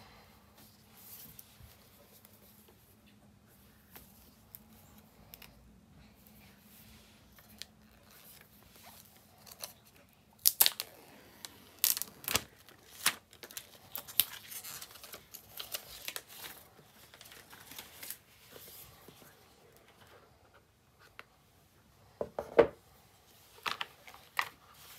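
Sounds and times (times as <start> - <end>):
packaging crinkling and rustling: 7.3 - 19.3, 23.4 - 24.9
seal tearing: 10.4 - 16.4.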